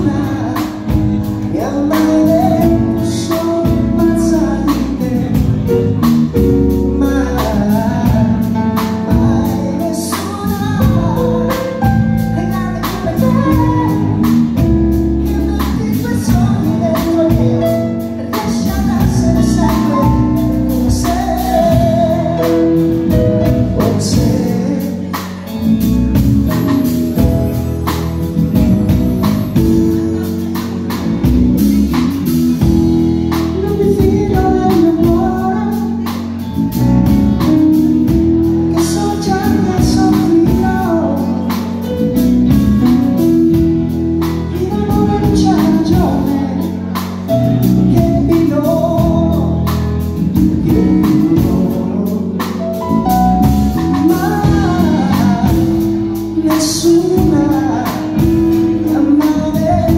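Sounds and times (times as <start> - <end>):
drums beating: 0.0 - 59.9
live pop band playing: 0.0 - 59.9
man singing: 0.0 - 59.9.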